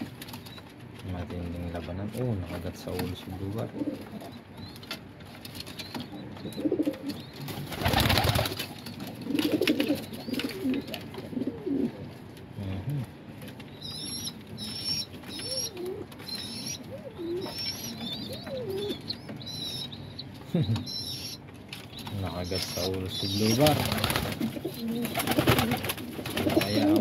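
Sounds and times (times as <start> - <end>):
pigeons cooing: 3.5 - 4.6, 6.1 - 12.7, 13.8 - 20.0, 22.3 - 27.0
wing-flapping scuffle: 6.7 - 10.8, 22.8 - 27.0.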